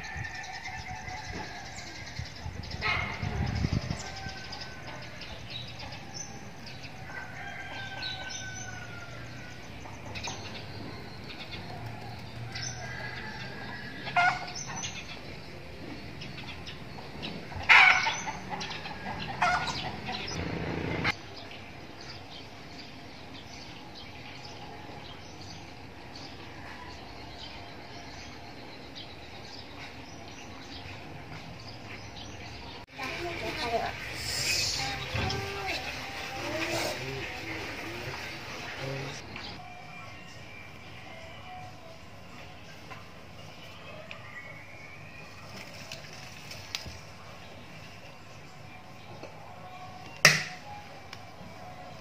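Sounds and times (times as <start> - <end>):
chickens calling: 0.0 - 15.2, 16.1 - 21.2, 32.7 - 47.4
songbirds chirping: 0.0 - 52.0.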